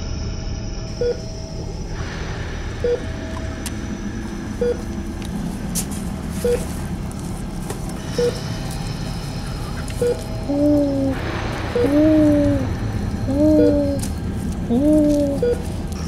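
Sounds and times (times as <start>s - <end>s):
steady low hum: 0.0s - 16.0s
short low electronic beep: 2.8s - 3.1s, 4.6s - 4.8s.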